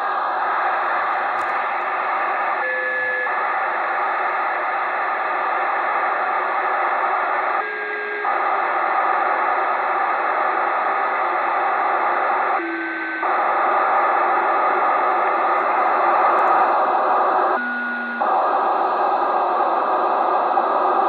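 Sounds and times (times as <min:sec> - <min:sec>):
digital data buzz from radio: 0:00.0 - 0:21.0.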